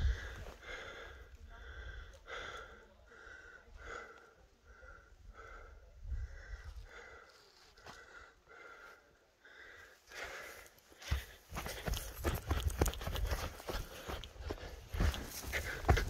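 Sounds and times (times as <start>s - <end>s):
person breathing hard: 0.0s - 16.0s.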